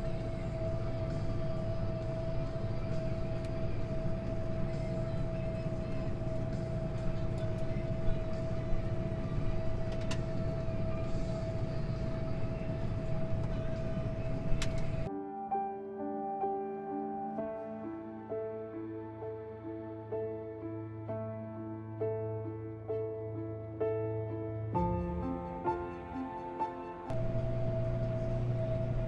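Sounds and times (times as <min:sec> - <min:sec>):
steady machine whine: 0:00.0 - 0:15.1, 0:27.1 - 0:29.0
tractor engine running: 0:00.0 - 0:15.1, 0:27.1 - 0:29.0.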